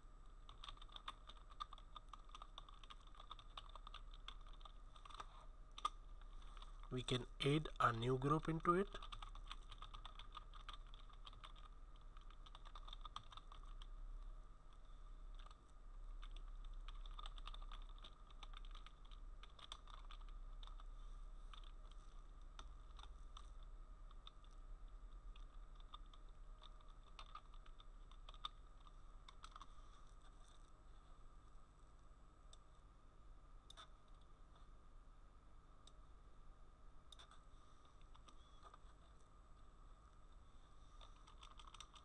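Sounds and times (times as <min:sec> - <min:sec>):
steady low hum: 0:00.0 - 0:42.0
typing on computer keyboard: 0:00.5 - 0:05.9, 0:08.4 - 0:13.9, 0:16.2 - 0:20.9, 0:25.3 - 0:29.7, 0:41.0 - 0:42.0.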